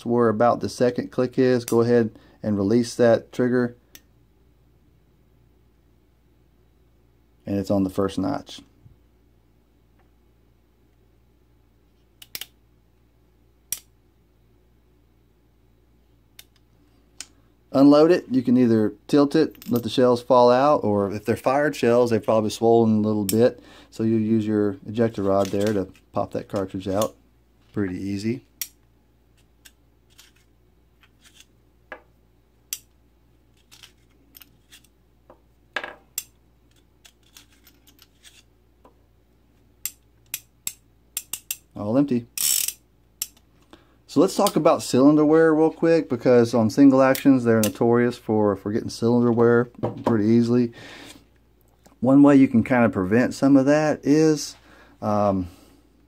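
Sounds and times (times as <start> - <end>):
cartridges set down on table: 35.8 - 36.0.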